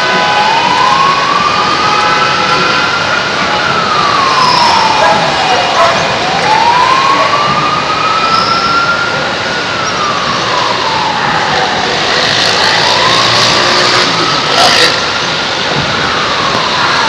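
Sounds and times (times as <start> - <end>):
loud steady rushing noise: 0.0 - 17.0
siren wailing: 0.0 - 17.0.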